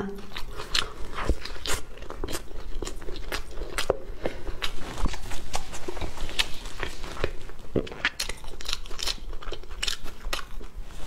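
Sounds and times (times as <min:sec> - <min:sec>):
chewing with wet mouth clicks: 0:00.2 - 0:10.8.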